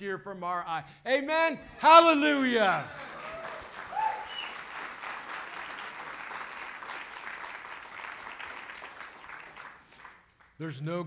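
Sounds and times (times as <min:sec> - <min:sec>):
crowd applauding: 0:01.9 - 0:10.6.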